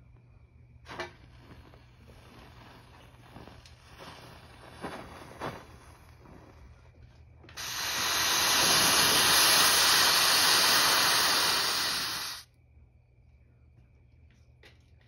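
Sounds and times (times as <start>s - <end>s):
smoke mixture burning with hiss: 0.9s - 6.6s, 7.5s - 12.5s.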